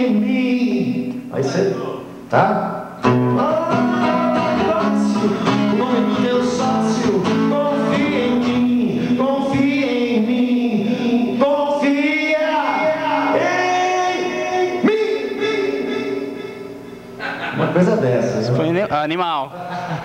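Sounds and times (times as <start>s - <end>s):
acoustic guitar strumming: 0.0s - 17.8s
man singing rock song: 3.2s - 16.5s.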